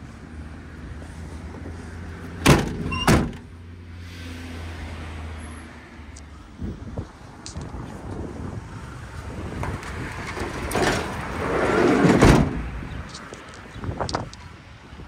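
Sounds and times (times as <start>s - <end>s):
van door slamming shut: 2.4s - 3.4s, 12.0s - 12.6s
van sliding door rolling: 9.7s - 12.7s.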